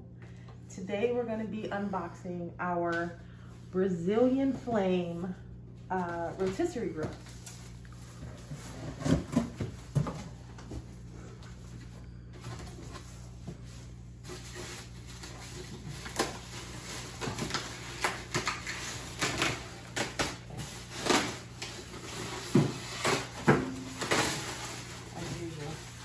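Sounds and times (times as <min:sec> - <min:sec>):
cardboard and foam rustling: 0:05.9 - 0:26.0.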